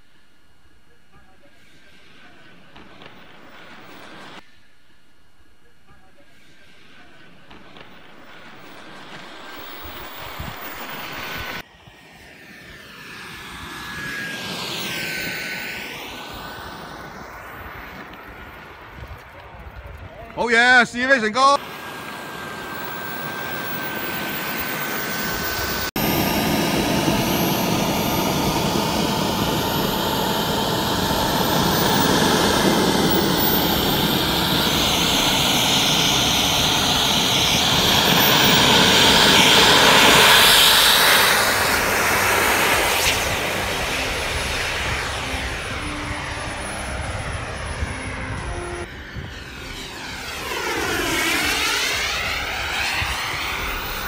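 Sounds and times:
model jet turbine whine: 0.0s - 4.9s, 6.0s - 19.3s, 20.4s - 54.0s
model jet passing low: 1.5s - 4.6s, 6.5s - 54.0s.

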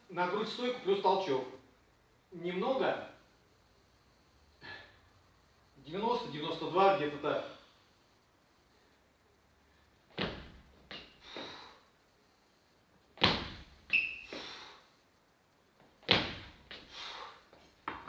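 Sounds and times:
shoes stamping on gym floor: 10.1s - 11.6s, 13.2s - 14.5s, 16.0s - 16.9s
shoe squeak: 10.9s - 11.6s, 13.9s - 14.7s
soft footsteps: 17.5s - 18.0s.

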